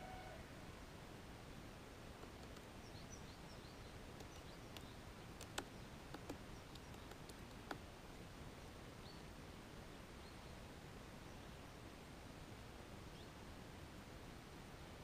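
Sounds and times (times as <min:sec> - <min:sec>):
background hiss: 0:00.0 - 0:15.0
woodpecker knocking on pine cone: 0:02.2 - 0:02.7, 0:04.2 - 0:07.9.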